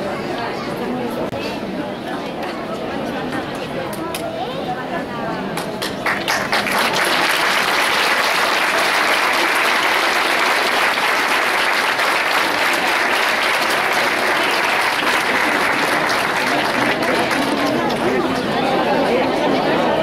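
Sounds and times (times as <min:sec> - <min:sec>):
crowd applauding: 0:05.8 - 0:18.8.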